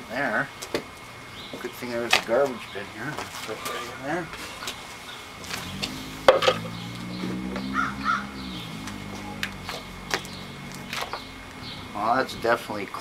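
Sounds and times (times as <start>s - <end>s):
bird calling: 3.5s - 12.3s
low hum: 5.5s - 12.0s.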